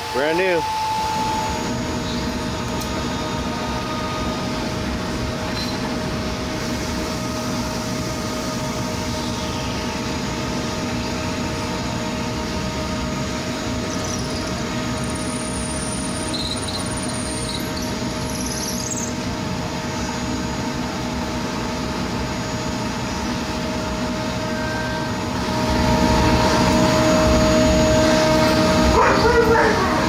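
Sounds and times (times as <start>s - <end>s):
drill press humming: 0.0s - 6.9s
drill bit squealing: 13.9s - 19.1s.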